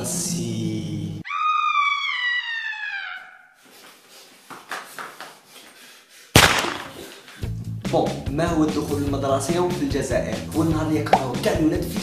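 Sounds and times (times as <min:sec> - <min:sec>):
handgun gunshot: 0:06.4 - 0:07.2.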